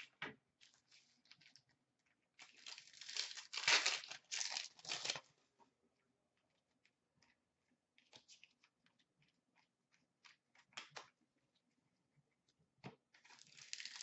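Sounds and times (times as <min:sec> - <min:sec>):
foil wrapper crinkling and tearing: 0:02.4 - 0:05.3, 0:13.3 - 0:14.0.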